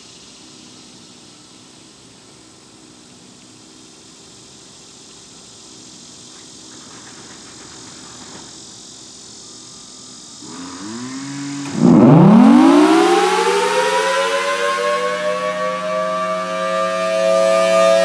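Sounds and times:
warning siren winding up: 10.5s - 18.0s.

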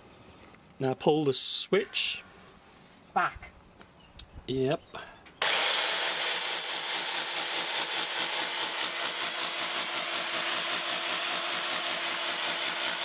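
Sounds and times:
demolition hammer chipping stone: 5.4s - 13.0s.

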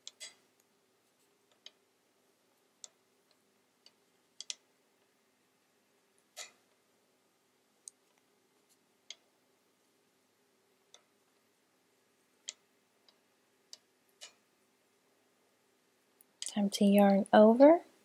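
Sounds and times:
wooden knitting needles clicking: 0.0s - 0.7s, 1.4s - 1.8s, 2.8s - 4.7s, 7.8s - 8.3s, 9.0s - 9.3s, 12.4s - 14.4s, 16.2s - 17.4s
faint steady hum: 0.0s - 18.0s.

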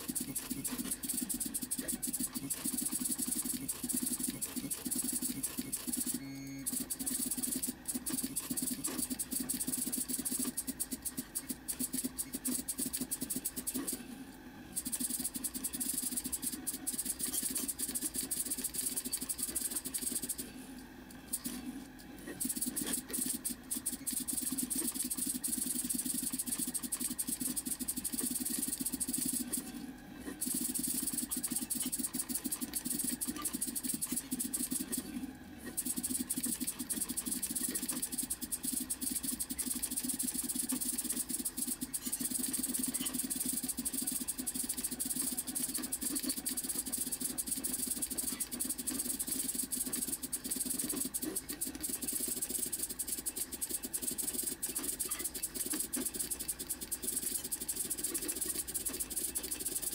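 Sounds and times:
stepper motors buzzing: 0.0s - 14.0s.

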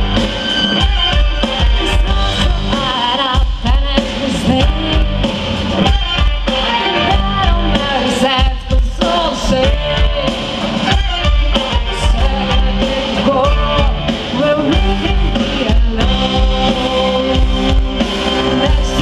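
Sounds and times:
drum kit beat: 0.0s - 19.0s
string orchestra playing rock: 0.0s - 19.0s
woman singing through pa: 1.8s - 5.3s, 6.8s - 17.8s, 18.5s - 19.0s.

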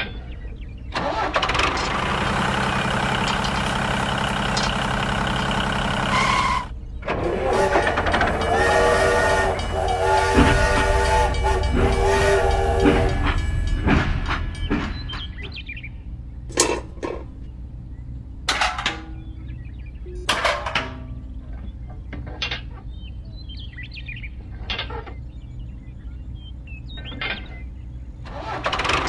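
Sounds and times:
toy train whistle blasts: 6.1s - 6.7s, 7.3s - 13.6s
toy train hissing chugging: 7.3s - 13.8s.

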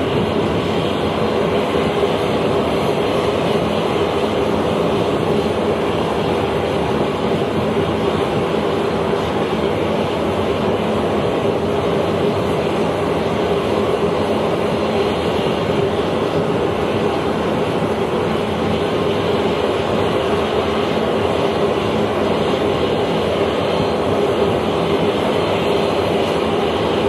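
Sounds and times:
aircraft engines droning: 0.0s - 27.0s.

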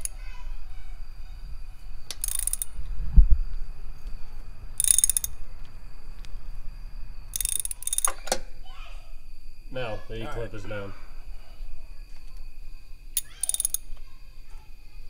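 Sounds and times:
hand ratchet clicking: 0.0s - 0.2s, 2.1s - 2.8s, 4.8s - 5.4s, 7.3s - 8.4s, 13.2s - 14.0s
dull low thump: 2.9s - 4.4s.

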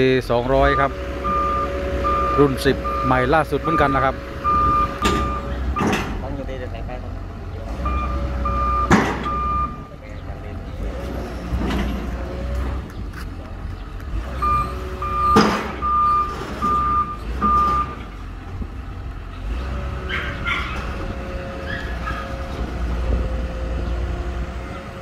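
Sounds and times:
excavator diesel engine running: 0.0s - 25.0s
travel alarm beeps: 0.7s - 6.0s, 7.8s - 9.9s, 14.4s - 18.0s.

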